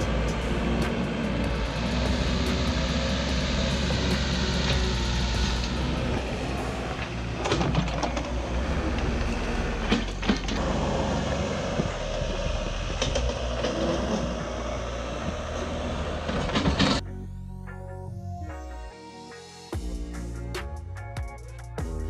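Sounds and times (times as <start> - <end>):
diesel engine running under load: 0.0 - 17.0.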